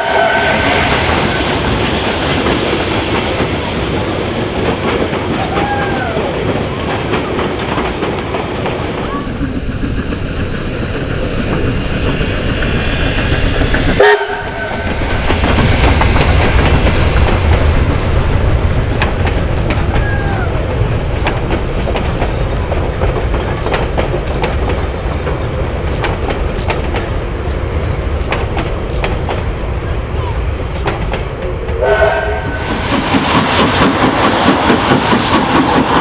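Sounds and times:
steam locomotive rumbling past: 0.0 - 36.0
wheels clicking over rail joints: 0.9 - 31.8.

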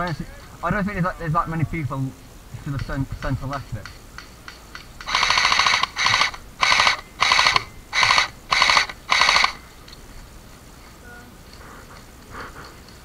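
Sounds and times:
airsoft gun firing bursts: 5.0 - 9.6.

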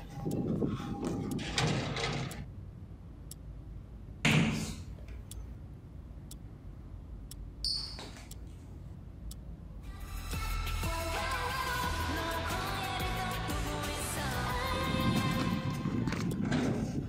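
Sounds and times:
brief high squeak: 7.6 - 8.2.

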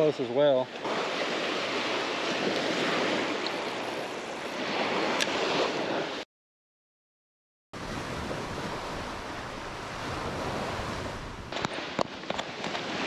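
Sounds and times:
surf washing onto beach: 0.0 - 6.2, 7.8 - 13.0
wind on microphone: 7.8 - 13.0.

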